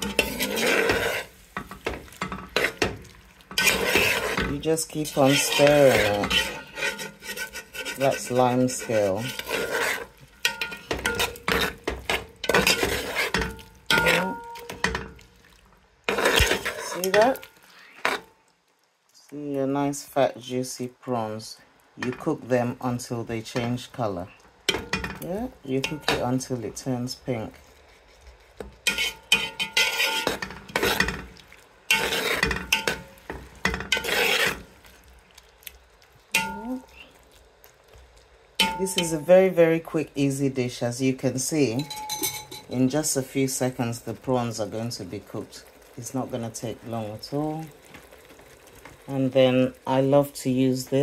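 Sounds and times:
spoon scraping and clinking pot: 0.0s - 15.2s, 16.1s - 18.3s, 24.7s - 26.3s, 28.1s - 34.8s, 36.3s - 37.0s, 38.6s - 39.4s, 41.6s - 43.2s.

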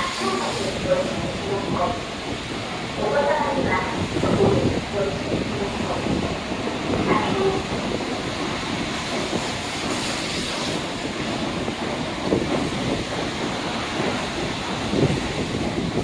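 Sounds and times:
train rushing rail noise: 0.0s - 16.0s.

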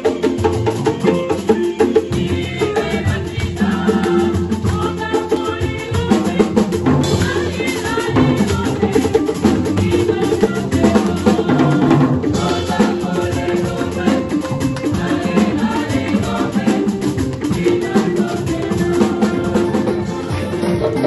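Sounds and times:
choir singing a hymn: 0.0s - 21.0s
drum kit beat: 0.0s - 21.0s
electric keyboard: 17.1s - 21.0s.

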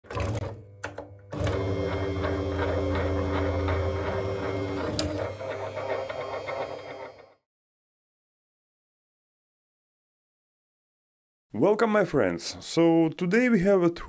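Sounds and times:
pen plotter motors whirring: 1.3s - 7.4s.

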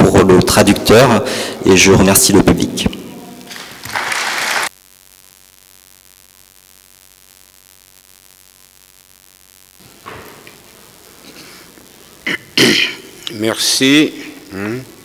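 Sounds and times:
faint hiss: 2.3s - 15.0s
applause: 3.4s - 4.7s.

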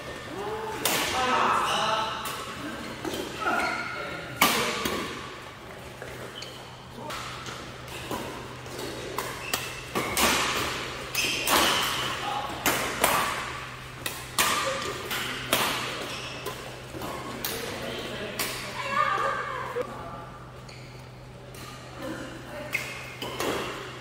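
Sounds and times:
shoes squeaking on court floor: 5.6s - 12.0s, 14.7s - 17.7s, 20.4s - 21.9s
rackets striking shuttlecock: 8.0s - 17.7s.

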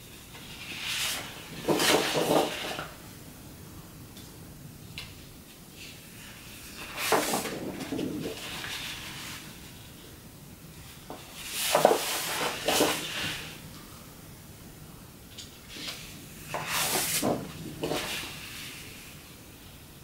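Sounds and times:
large paper sheets rustling: 0.4s - 2.9s, 6.2s - 9.8s, 10.9s - 13.6s, 15.7s - 18.9s
paper sheet flapping: 0.4s - 2.9s, 6.7s - 9.6s, 11.4s - 13.6s, 15.7s - 18.6s.

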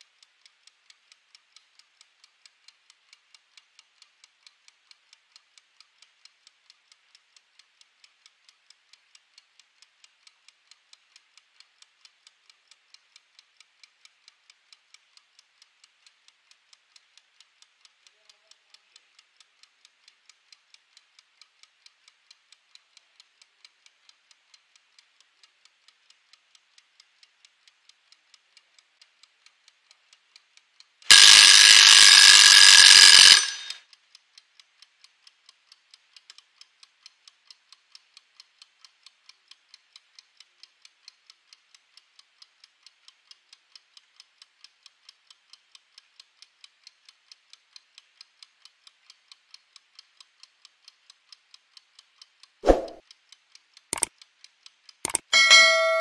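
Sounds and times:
kitchen timer ticking: 0.0s - 56.0s
timer bell ringing: 31.1s - 33.8s, 55.1s - 56.0s.

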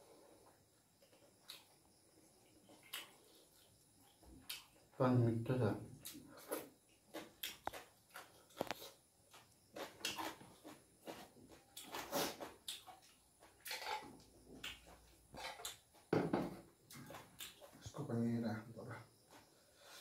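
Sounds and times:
man chewing food: 0.0s - 5.0s, 6.0s - 18.0s, 19.0s - 20.0s
wet mouth smacks and clicks: 7.4s - 7.7s.

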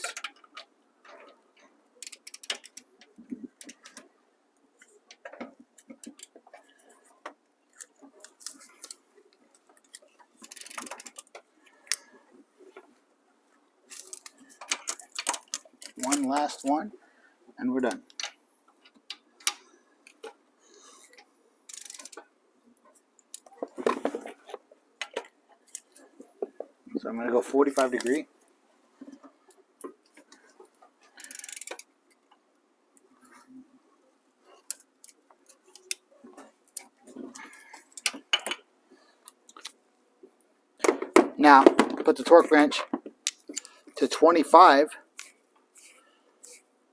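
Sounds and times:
ratchet clicking: 10.5s - 11.2s, 21.7s - 22.2s, 31.2s - 31.8s.

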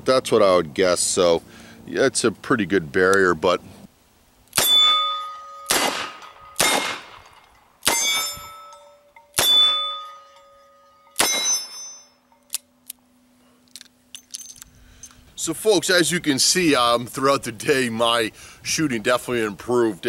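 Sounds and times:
steel plate target ringing: 4.6s - 12.5s.

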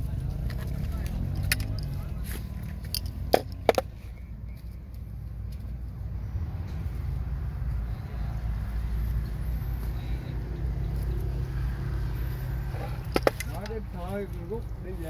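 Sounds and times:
helmet clicks and knocks: 2.8s - 3.9s, 13.0s - 13.8s.

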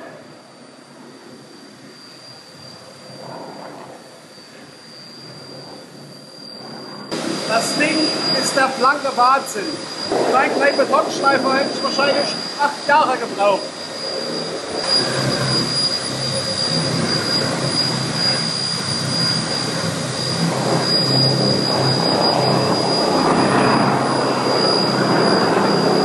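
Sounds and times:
dust extractor running: 7.1s - 26.0s.

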